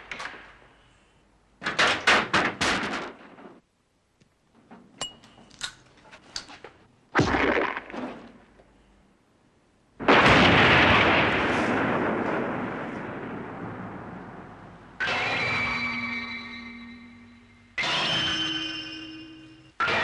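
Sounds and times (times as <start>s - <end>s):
big explosion: 7.2s - 8.3s, 10.0s - 16.0s.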